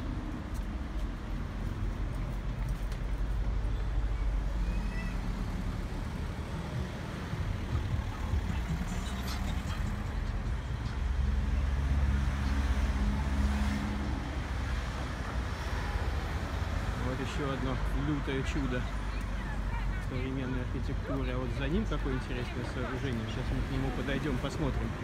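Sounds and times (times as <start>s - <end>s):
low engine hum: 0.0s - 14.8s
vehicle engines passing: 0.0s - 25.0s.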